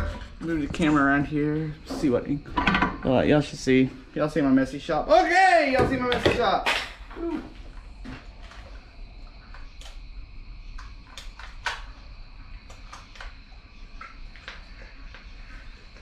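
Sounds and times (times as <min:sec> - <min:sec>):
faint hum: 0:07.0 - 0:16.0.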